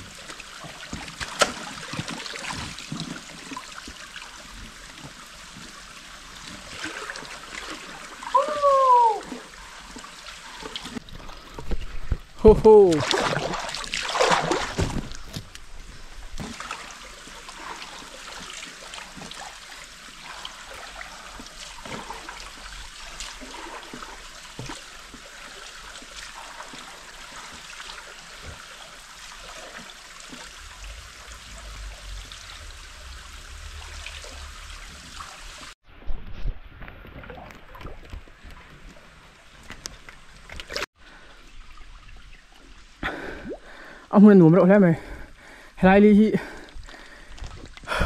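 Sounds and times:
small splashes and drips: 0.0 - 35.8, 46.4 - 48.0
stream water flowing: 0.0 - 36.2, 36.8 - 48.0
low rumble: 30.3 - 37.0.

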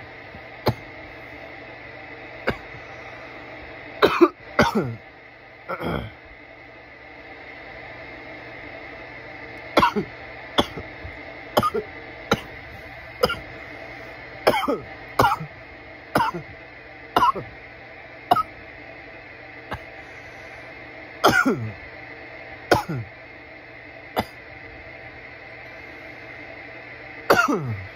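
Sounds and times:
man coughing: 2.4 - 2.8, 4.0 - 5.0, 5.7 - 6.2, 9.8 - 10.8, 11.6 - 12.5, 13.2 - 13.5, 14.5 - 15.5, 16.2 - 16.5, 17.2 - 17.5, 21.2 - 21.8, 22.7 - 23.1, 27.3 - 27.9.

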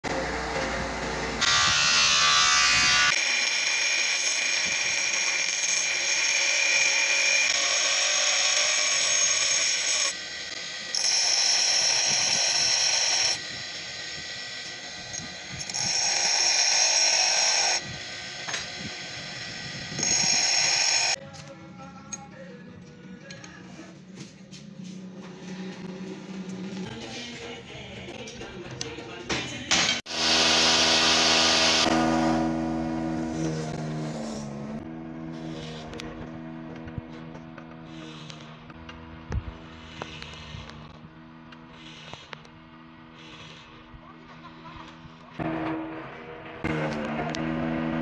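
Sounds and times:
bench grinder sharpening drill bit: 2.4 - 21.2, 39.7 - 40.9, 41.8 - 42.5, 43.2 - 43.8.

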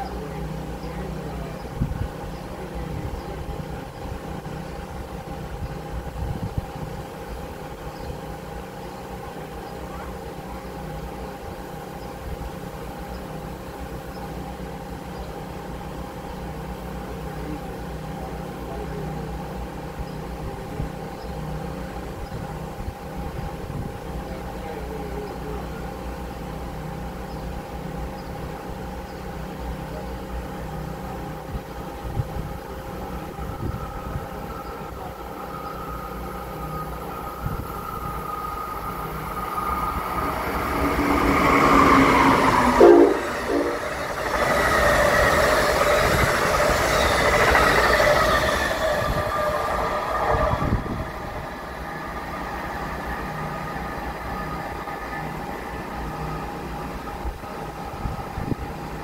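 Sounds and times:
steady machine hum: 0.0 - 59.0
gusts in the low end: 2.9 - 8.3, 37.2 - 54.9
low rumble: 31.5 - 56.1.

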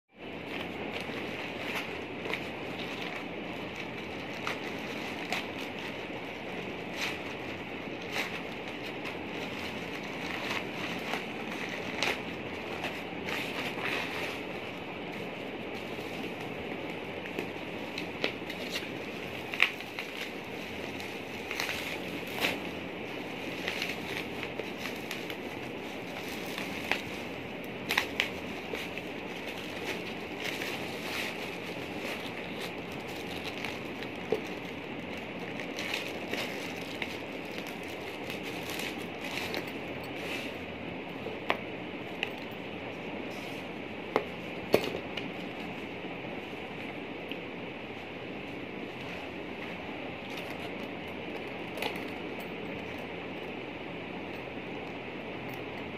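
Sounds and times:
plastic packaging crinkling: 0.3 - 40.6
bubble wrap snapping: 0.4 - 40.6.

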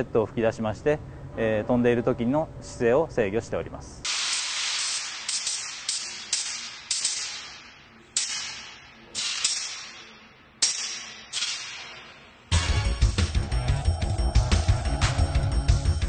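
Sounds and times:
gas-jet thruster hissing bursts: 4.0 - 6.0.

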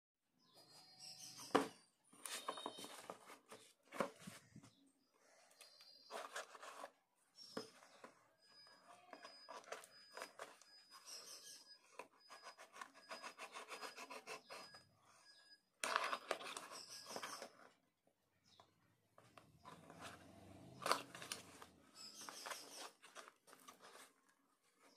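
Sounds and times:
scratching at tape and cardboard: 11.9 - 14.8.

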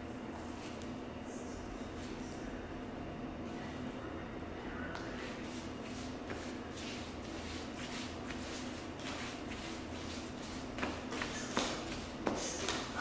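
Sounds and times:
hands kneading dough: 4.9 - 13.0.

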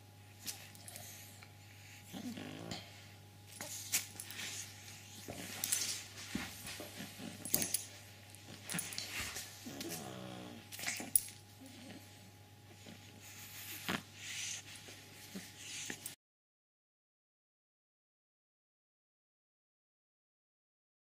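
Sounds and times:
puppy whining: 1.9 - 6.0, 8.6 - 16.2.

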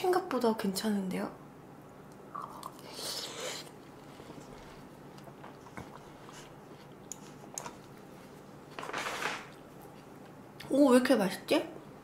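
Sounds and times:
chewing watermelon: 2.4 - 8.1.

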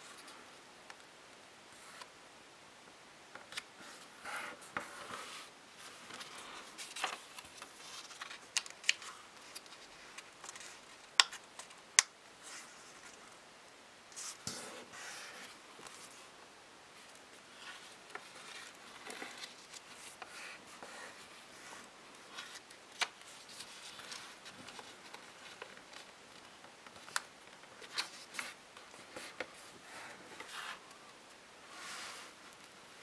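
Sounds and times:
paper rustling: 3.5 - 11.8, 17.0 - 30.9
crisp paper fold clicks: 6.9 - 12.1.

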